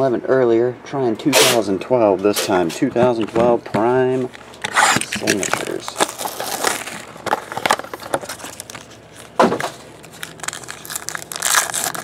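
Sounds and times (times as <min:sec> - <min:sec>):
foil wrapper crinkling and tearing: 0:04.7 - 0:12.0.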